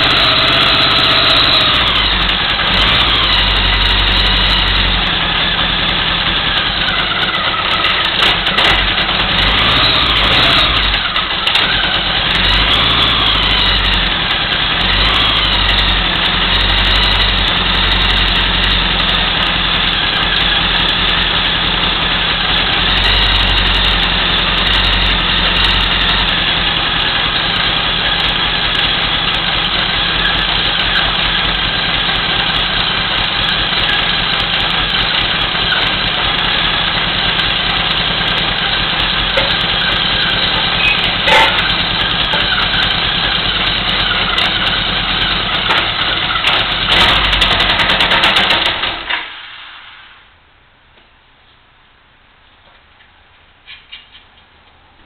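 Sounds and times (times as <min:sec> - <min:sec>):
motorcycle engine fast idle: 0:05.0 - 0:09.4, 0:10.7 - 0:12.5, 0:26.2 - 0:49.1.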